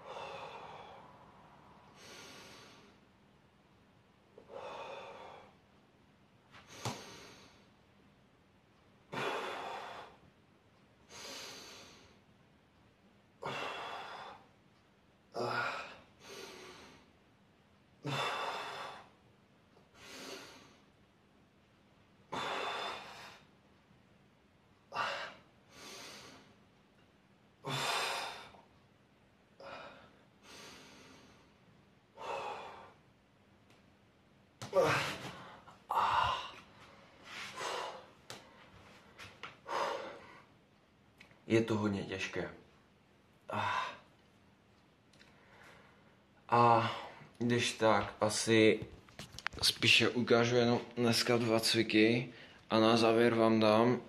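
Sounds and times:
man breathing hard: 0.0s - 3.0s, 4.4s - 5.6s, 13.4s - 14.5s, 18.0s - 19.2s, 22.3s - 23.5s, 29.6s - 33.0s, 34.7s - 38.7s, 39.6s - 40.6s, 43.5s - 44.1s.

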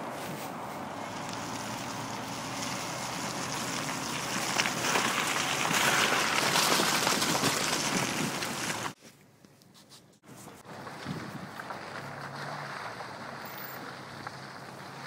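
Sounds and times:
tyres and engine rumbling: 0.0s - 9.0s, 10.2s - 15.0s
wind noise on microphone: 4.8s - 9.0s, 10.7s - 12.0s.

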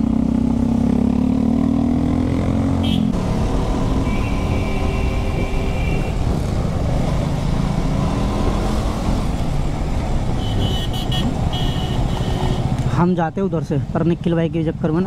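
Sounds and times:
motorcycle engine cruising: 0.0s - 12.9s
city traffic: 0.0s - 15.0s
high-pitched vehicle horn beeps: 4.0s - 6.2s.

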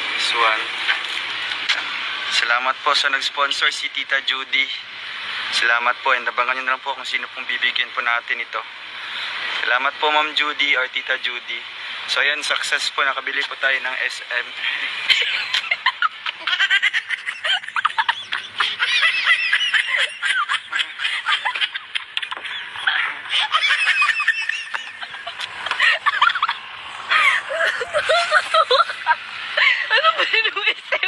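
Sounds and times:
person laughing hard: 15.1s - 31.0s.

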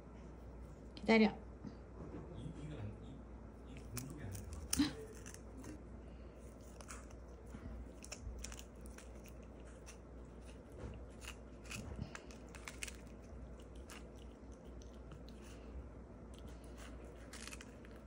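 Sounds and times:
cat crunching fish: 3.6s - 18.0s.

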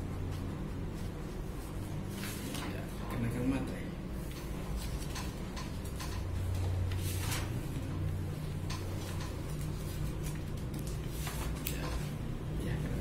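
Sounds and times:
paper rustling: 6.5s - 7.8s, 9.0s - 12.2s.

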